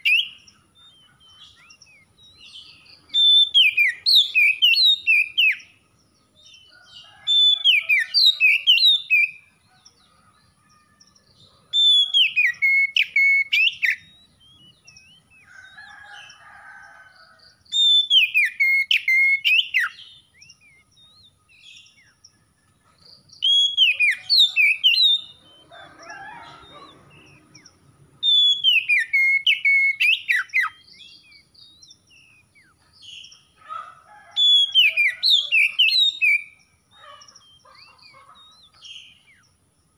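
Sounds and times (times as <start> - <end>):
bird singing whistled phrases: 3.1 - 5.6, 11.8 - 15.3, 17.8 - 21.4, 23.4 - 25.6, 28.2 - 31.4.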